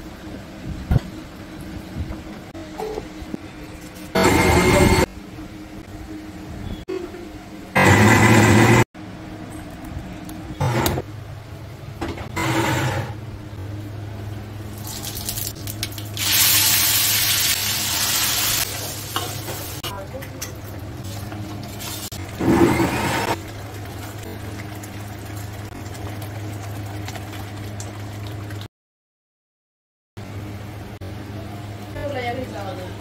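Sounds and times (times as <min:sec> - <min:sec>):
steady low hum: 0:00.0 - 0:15.9
mixer grinder running: 0:04.2 - 0:05.1, 0:07.8 - 0:08.9, 0:12.4 - 0:13.2, 0:22.2 - 0:23.5
oil sizzling in a pan: 0:14.7 - 0:19.8.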